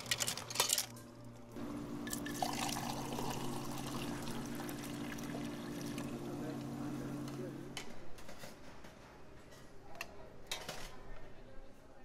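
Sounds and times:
steady low hum: 1.0 - 8.0
water pouring into cup of ice: 2.0 - 6.2.

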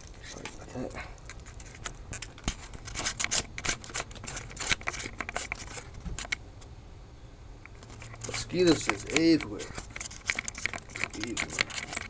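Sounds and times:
camera handling clicks and rustles: 1.2 - 6.4, 7.7 - 12.0.

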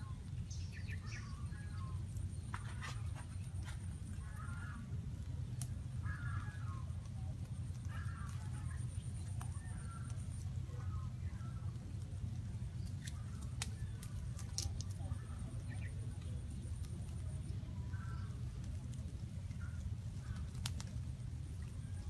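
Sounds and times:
bird calling: 0.0 - 7.1, 7.8 - 11.9, 17.4 - 20.7
steady low rumble: 0.0 - 22.0.

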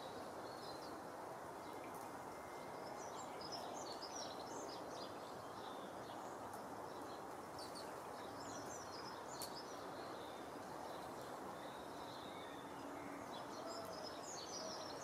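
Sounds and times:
low background hiss: 0.0 - 15.0
songbirds twittering: 0.0 - 15.0.

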